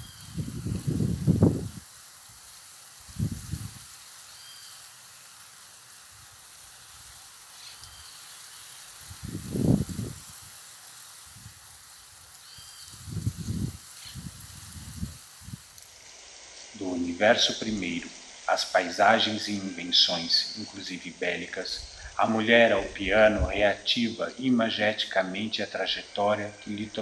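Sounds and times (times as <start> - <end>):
steady hiss: 0.0 - 27.0
low rumbling bursts: 21.5 - 24.1.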